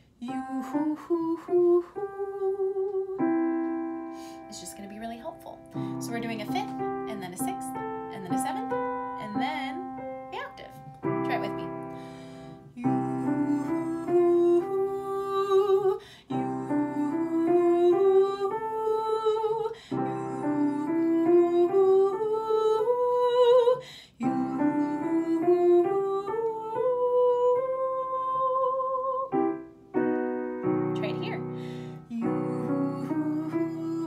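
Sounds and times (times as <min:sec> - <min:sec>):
woman singing vocal exercise: 0:00.0 - 0:03.5, 0:12.6 - 0:29.4, 0:31.2 - 0:34.0
piano chords: 0:00.0 - 0:34.0.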